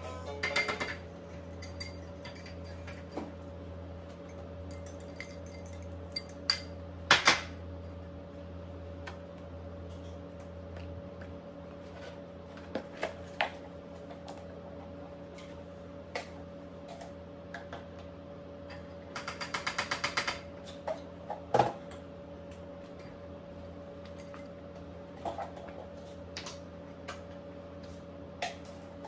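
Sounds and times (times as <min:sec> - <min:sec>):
kitchen utensils clinking: 0:00.0 - 0:03.4, 0:04.2 - 0:06.8
steady low hum: 0:00.0 - 0:19.2.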